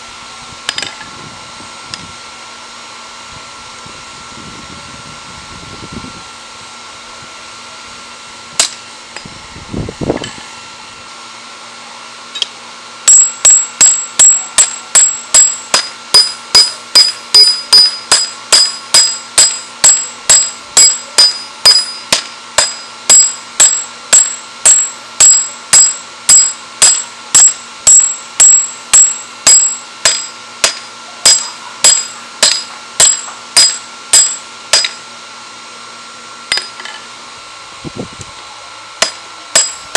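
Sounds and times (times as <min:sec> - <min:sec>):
steady hum: 0:00.0 - 0:39.9
hammer striking metal on anvil: 0:08.6 - 0:08.8, 0:12.4 - 0:35.1, 0:36.5 - 0:37.0, 0:39.0 - 0:39.9.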